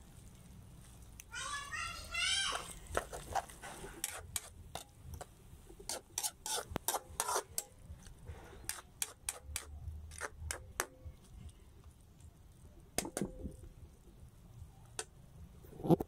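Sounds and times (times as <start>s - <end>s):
metal spatula scraping a wok: 2.6s - 5.0s, 5.8s - 10.8s.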